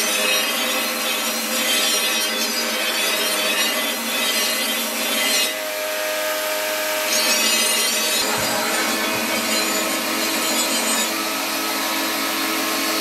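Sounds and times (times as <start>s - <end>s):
blade grinding on belt grinder: 0.0s - 13.0s
belt grinder running hum: 3.6s - 13.0s.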